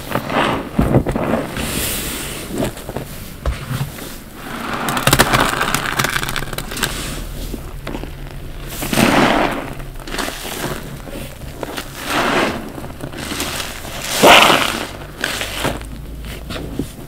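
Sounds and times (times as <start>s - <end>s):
sponge squelching in sudsy water: 8.6s - 17.0s.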